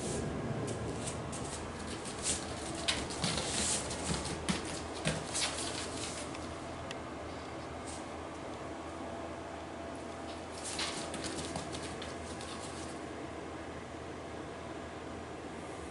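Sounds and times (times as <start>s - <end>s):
puppy paws scrabbling on foam mat: 0.0s - 6.6s, 10.0s - 13.0s.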